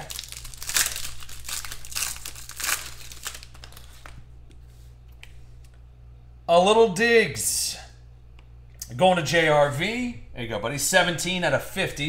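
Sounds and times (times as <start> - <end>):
foil wrapper tearing and crinkling: 0.0 - 4.2.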